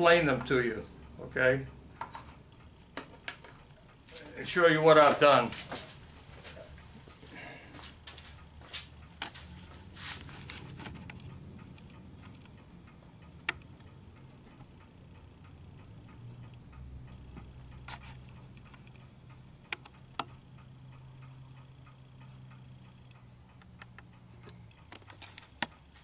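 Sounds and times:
steady low hum: 0.0 - 26.0
sharp clicks: 16.4 - 20.4.

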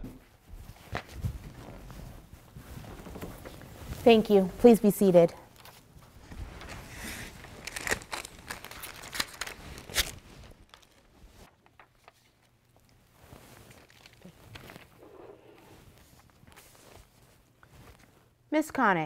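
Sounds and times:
rustling and shuffling: 0.0 - 18.5
paper being handled: 5.6 - 18.1.

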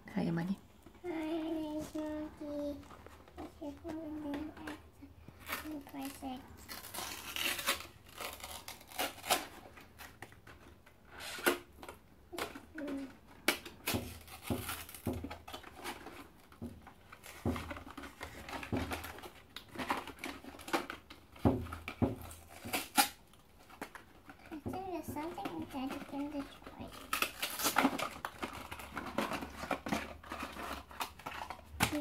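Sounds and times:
cardboard box tearing and crinkling: 5.4 - 10.2, 13.8 - 23.2, 25.4 - 32.0.

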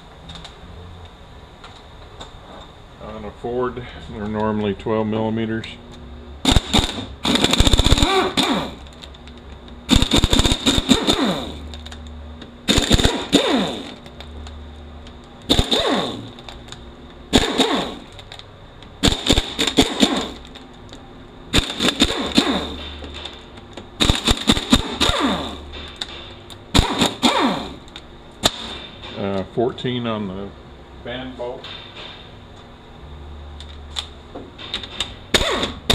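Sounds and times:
impact wrench bursts: 6.4 - 9.0, 9.9 - 11.8, 12.6 - 14.1, 15.5 - 16.6, 17.3 - 18.2, 19.0 - 20.6, 21.5 - 23.4, 24.0 - 29.2, 35.3 - 35.9.

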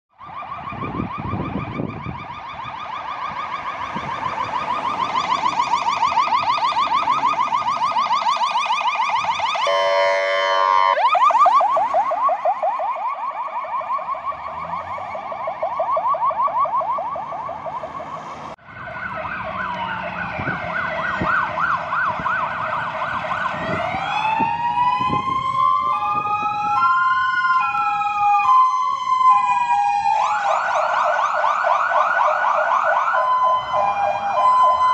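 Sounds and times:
fire engine siren yelp: 0.1 - 34.9
two-tone siren: 0.1 - 34.9
wailing siren: 0.1 - 34.9
horn blast: 9.6 - 11.0.

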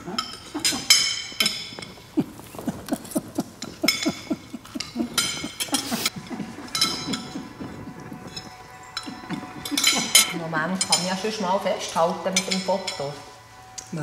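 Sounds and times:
cutlery clinking on plates: 0.0 - 11.3
soft chewing: 0.2 - 10.2.

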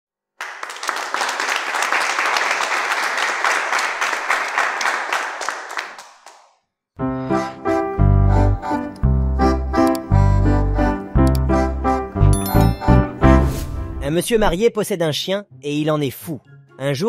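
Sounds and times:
applause: 0.3 - 6.6
piano tune with heavy bass: 7.0 - 14.6.

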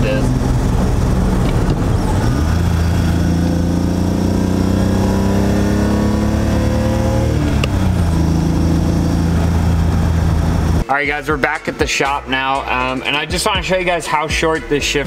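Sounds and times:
car engine revving through gears: 0.0 - 10.8
gear shift click: 0.7 - 2.6, 7.5 - 7.9.

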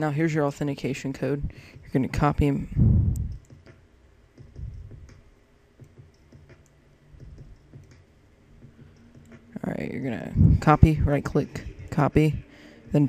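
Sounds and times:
soft low thumps: 1.4 - 9.6, 10.2 - 12.5
mouse and keyboard clicks: 3.2 - 3.8.

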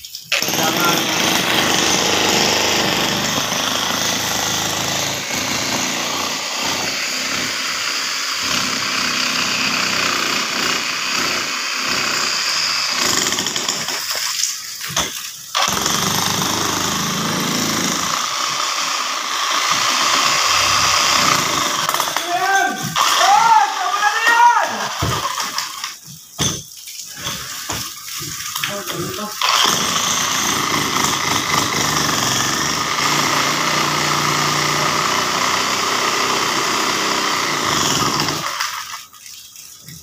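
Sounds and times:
demolition hammer rattling: 0.4 - 12.3, 12.9 - 14.3, 19.6 - 23.2.

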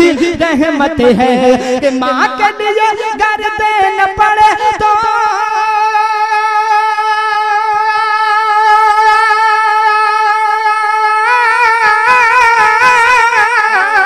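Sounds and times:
person singing unaccompanied: 0.0 - 14.0.

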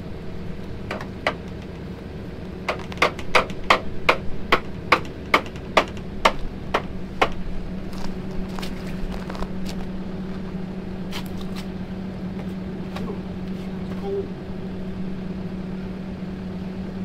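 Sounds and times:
portable generator humming: 0.0 - 17.0.

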